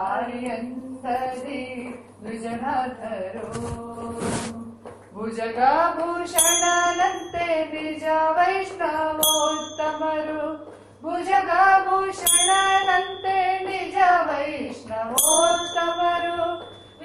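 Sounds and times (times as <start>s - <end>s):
person singing devotional song: 0.0s - 16.8s
small bell ringing: 6.3s - 10.7s, 12.1s - 17.0s.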